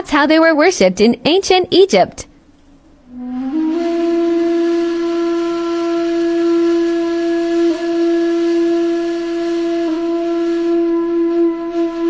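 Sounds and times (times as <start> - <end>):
breathy flute-like long note: 3.0 - 12.0.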